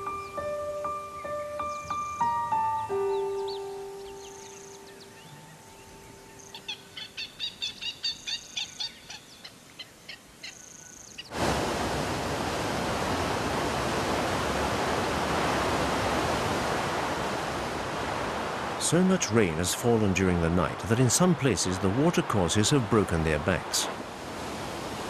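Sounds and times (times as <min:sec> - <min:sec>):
high bird chirps: 0:00.1 - 0:09.5
river rushing over rocks: 0:11.3 - 0:25.0.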